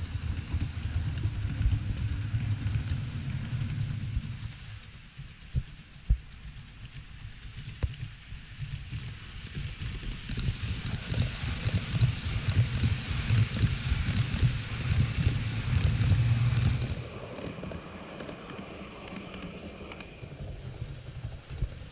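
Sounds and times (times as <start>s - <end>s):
model train rumbling: 0.0s - 21.9s
wheels clicking over rail joints: 6.6s - 21.8s.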